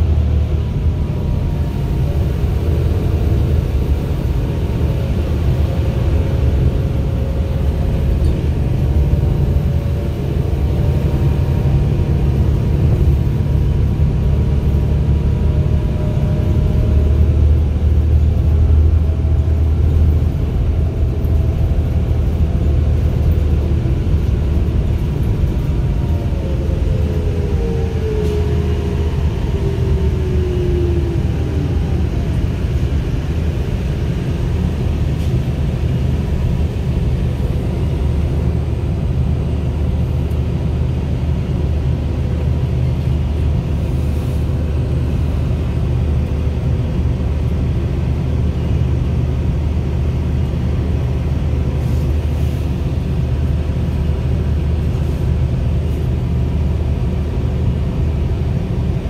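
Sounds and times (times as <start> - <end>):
bus engine drone: 0.0 - 59.0
road noise: 0.0 - 59.0
whine sliding down in pitch: 26.0 - 32.5.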